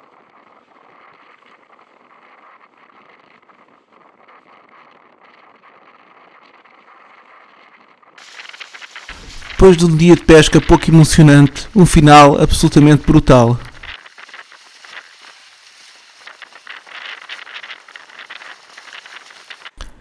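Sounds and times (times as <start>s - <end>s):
bright hiss: 8.2s - 19.8s.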